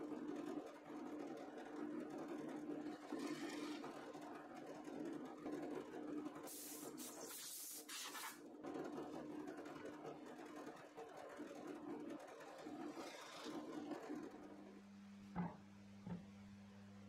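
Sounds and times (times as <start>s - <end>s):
brief hissing noises: 6.5s - 8.4s.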